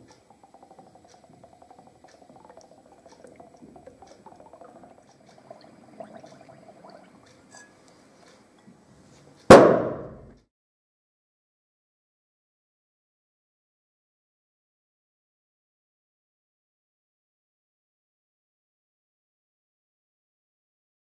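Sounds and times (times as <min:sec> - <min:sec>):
faint bubbling in soapy water: 0:00.0 - 0:09.3
sharp bang of exploding bubbles: 0:09.5 - 0:10.3.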